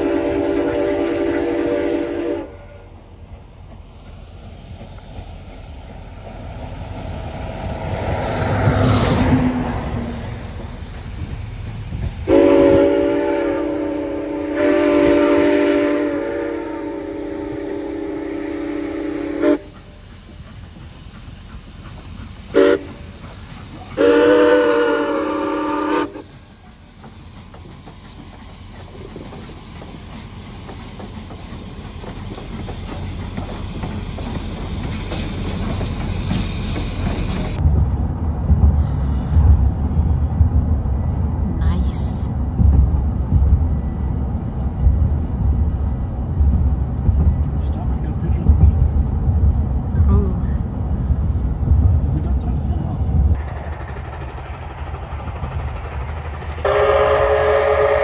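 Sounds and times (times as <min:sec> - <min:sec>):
steam locomotive chime whistle: 0:00.0 - 0:02.9, 0:09.5 - 0:30.0, 0:31.4 - 0:37.6, 0:56.6 - 0:58.0
train running rumble: 0:00.0 - 0:58.0.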